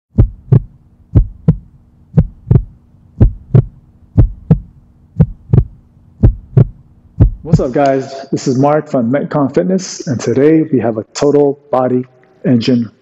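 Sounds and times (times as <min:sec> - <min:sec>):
heartbeat thumps: 0:00.1 - 0:07.8
faint low hum: 0:00.2 - 0:13.0.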